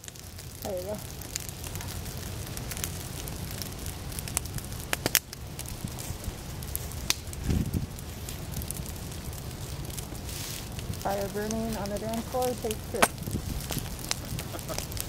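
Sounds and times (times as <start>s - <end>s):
fire crackling with sharp pops: 0.0s - 15.0s.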